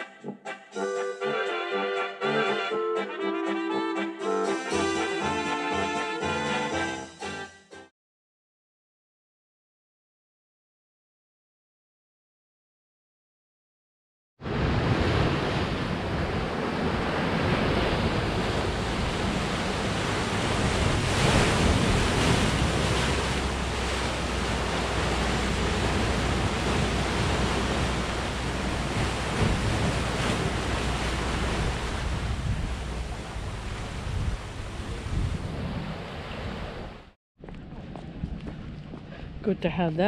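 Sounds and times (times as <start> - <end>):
surf breaking into rocks: 14.4 - 36.8
wind rumbling on microphone: 14.4 - 40.0.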